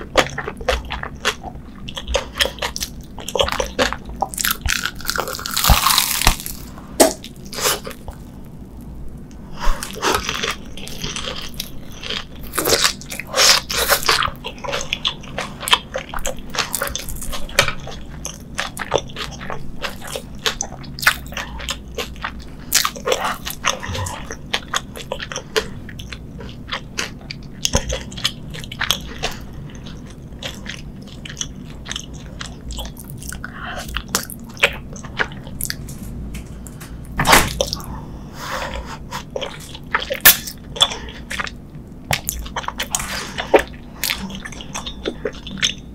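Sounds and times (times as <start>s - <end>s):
crisp crunching: 3.6s - 8.3s
wet chewing: 9.8s - 35.9s.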